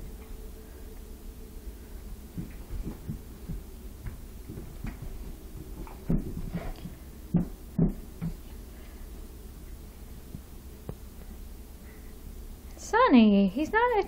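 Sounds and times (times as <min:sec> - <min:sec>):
low hum: 0:00.0 - 0:14.0
dogs thumping and scuffling: 0:02.3 - 0:08.6.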